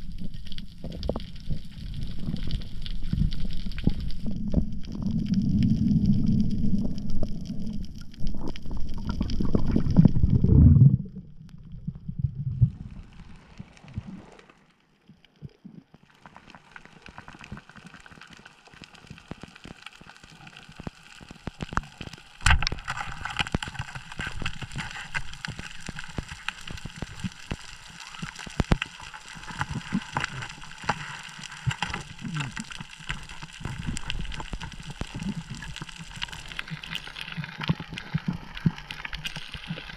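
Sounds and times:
rushing water and bubbles: 0.0 - 39.9
fizzing crackle of small clicks: 13.2 - 39.9.

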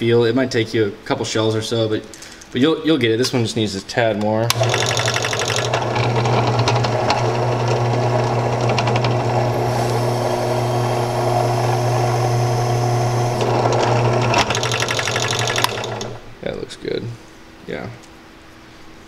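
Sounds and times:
drill press motor running: 4.5 - 16.3.

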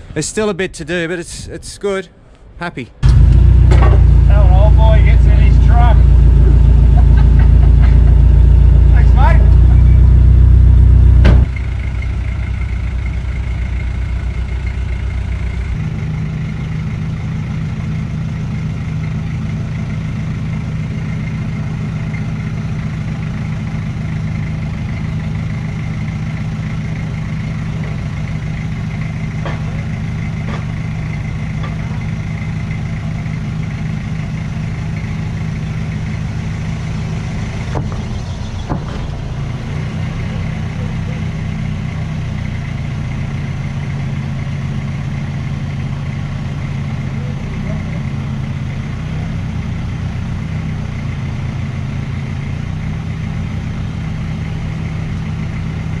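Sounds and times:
diesel engine idling: 0.0 - 56.0.

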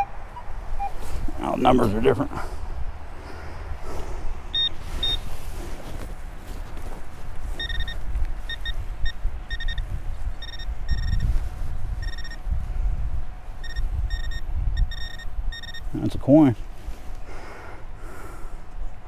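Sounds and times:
metal detector beeping: 0.0 - 1.0, 4.5 - 5.2, 7.5 - 11.3, 12.0 - 12.4, 13.6 - 15.9.

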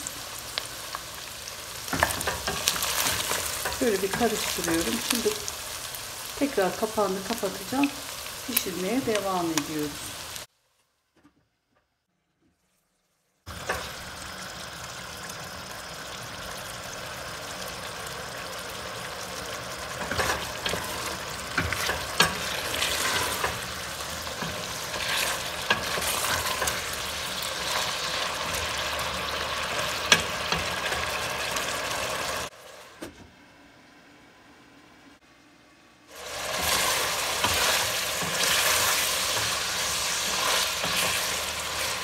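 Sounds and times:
meat sizzling in a pot: 0.0 - 10.5, 13.4 - 32.9, 36.1 - 42.0
wooden spoon scraping a pot: 20.0 - 28.0, 36.5 - 42.0.

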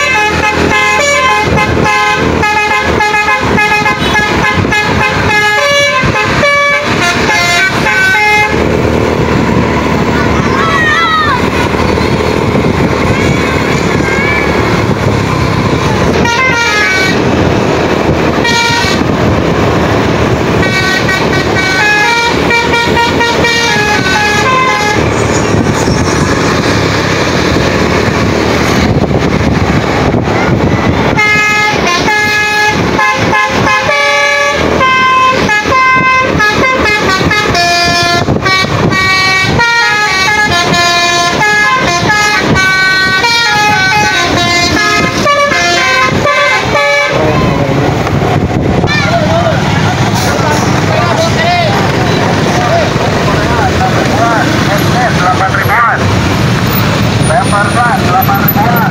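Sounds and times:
musical air horn playing tune: 0.0 - 8.8, 16.1 - 17.4, 18.4 - 19.2, 20.5 - 25.2, 31.1 - 47.6
bus engine and road noise: 0.0 - 58.9.

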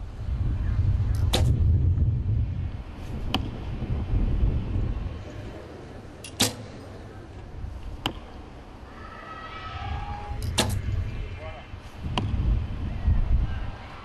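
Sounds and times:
low outdoor rumble: 0.0 - 14.0
arrows being shot: 1.1 - 1.7, 3.0 - 3.6, 6.2 - 6.9, 10.3 - 11.1, 11.8 - 12.4.

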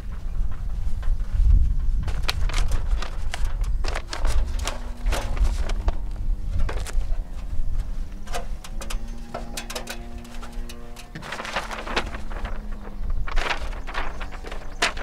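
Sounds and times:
steady low rumble: 0.0 - 15.0
stepladder knocking and rattling: 1.8 - 12.5.

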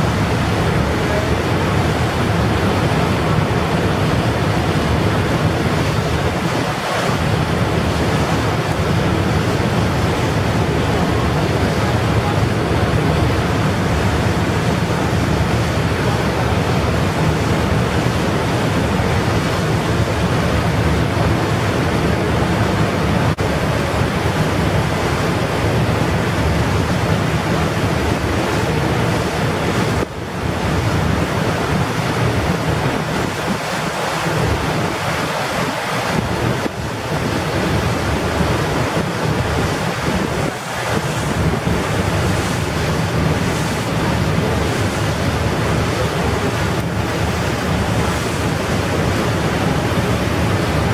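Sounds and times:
wind noise on microphone: 0.0 - 50.9.

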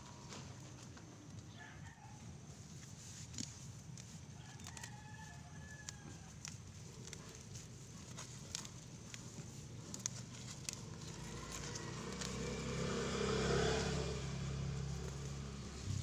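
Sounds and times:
weeds pulled from soil: 2.5 - 16.0
vehicle engine passing: 10.7 - 16.0.

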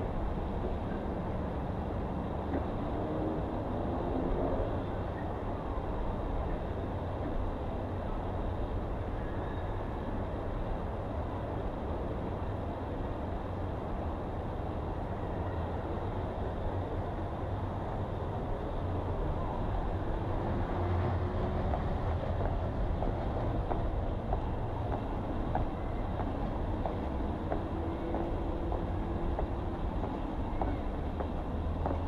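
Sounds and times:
low outdoor rumble: 15.4 - 32.0.

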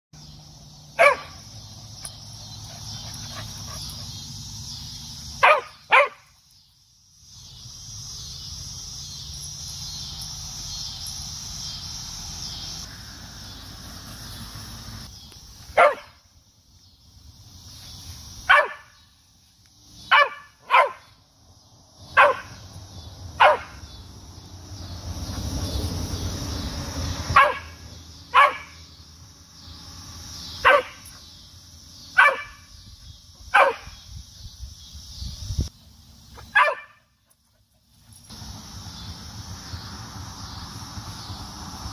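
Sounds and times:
cicadas droning: 0.2 - 41.9
dog barking: 1.0 - 1.4, 5.4 - 6.2, 15.8 - 16.2, 18.5 - 18.9, 20.1 - 21.1, 22.2 - 22.6, 23.4 - 23.8, 27.4 - 28.8, 30.6 - 31.0, 32.2 - 32.6, 33.5 - 34.0, 36.4 - 37.0.

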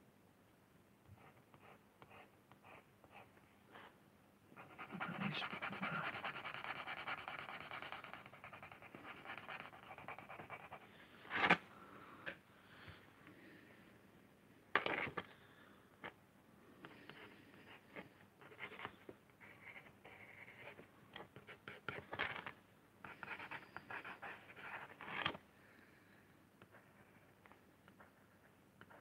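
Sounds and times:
pen scribbling on lino: 4.6 - 10.8.

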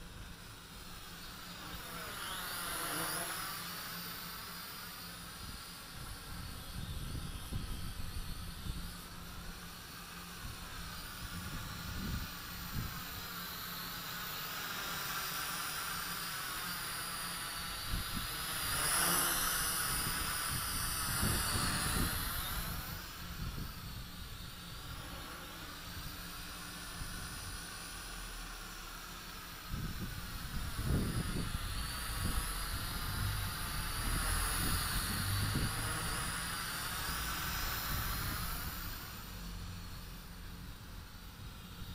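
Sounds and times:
drone propellers whirring: 0.0 - 41.9
wind buffeting microphone: 19.7 - 25.0, 29.7 - 36.1.

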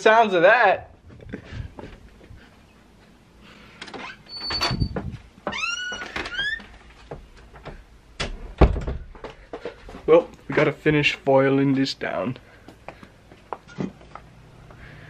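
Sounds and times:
wooden door hinges squeaking: 3.8 - 9.1.

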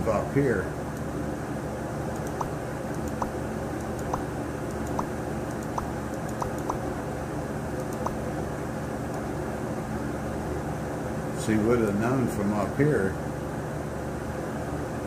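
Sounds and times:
low background hum: 0.0 - 15.0
fingertip taps on touchscreen: 4.8 - 6.8.

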